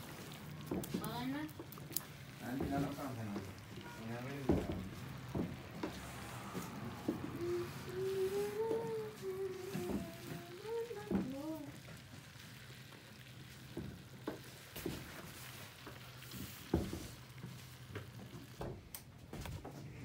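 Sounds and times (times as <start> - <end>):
pestle grinding seed paste: 0.0 - 18.7
wooden knocks and creaks: 0.6 - 1.8, 2.5 - 7.5, 16.4 - 17.2.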